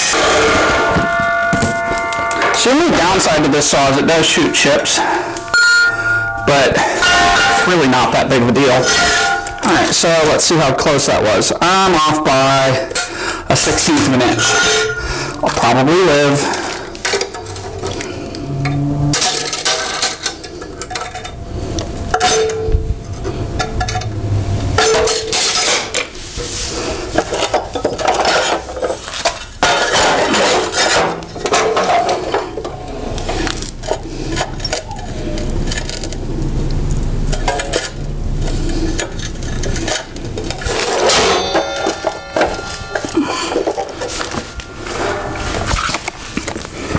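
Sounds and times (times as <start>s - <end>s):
ringing metallic note: 0.0s - 9.9s, 13.6s - 17.5s, 40.6s - 46.0s
steel stock clanking and scraping: 0.0s - 24.2s, 24.8s - 36.5s, 37.1s - 46.9s.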